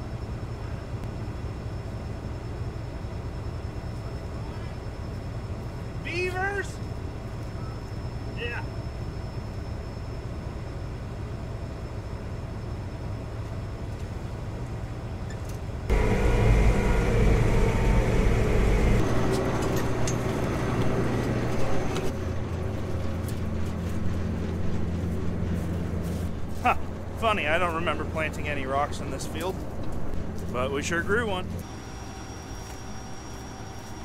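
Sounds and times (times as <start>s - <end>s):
combine header cutting crop: 15.9s - 29.7s
combine engine running: 15.9s - 33.7s.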